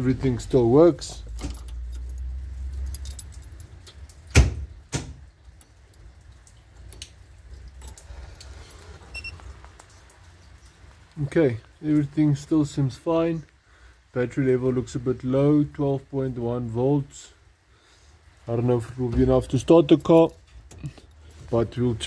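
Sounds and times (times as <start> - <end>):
keys jangling in ignition: 1.2 - 4.2.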